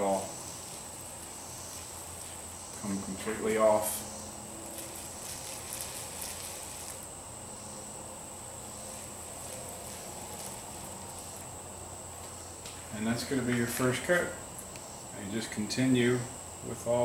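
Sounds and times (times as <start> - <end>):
paint roller soft crackle: 0.0 - 4.0, 4.6 - 7.2, 8.6 - 14.2
steady high-pitched tone: 0.0 - 17.0.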